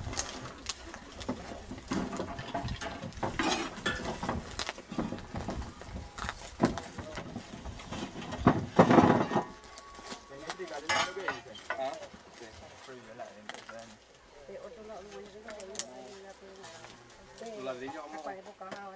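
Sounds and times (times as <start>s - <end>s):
tools knocking and clattering: 7.9s - 9.8s, 10.8s - 11.9s.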